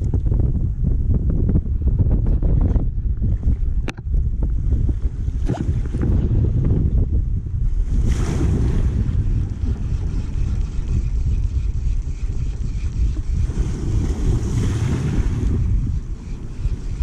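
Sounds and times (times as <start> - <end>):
wind buffeting microphone: 0.0 - 17.0
waves washing over rocks: 8.0 - 9.2, 13.4 - 15.7.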